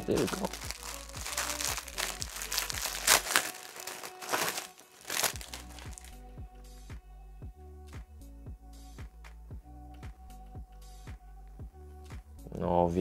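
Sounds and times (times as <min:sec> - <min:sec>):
plastic packaging crinkling: 0:00.0 - 0:06.1
background music with beat: 0:00.0 - 0:13.0.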